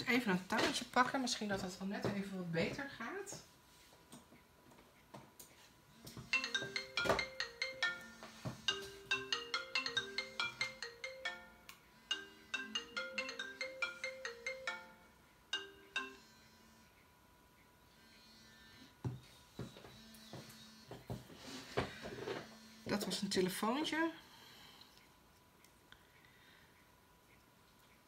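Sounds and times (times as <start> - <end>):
phone ringtone melody: 6.2 - 16.9.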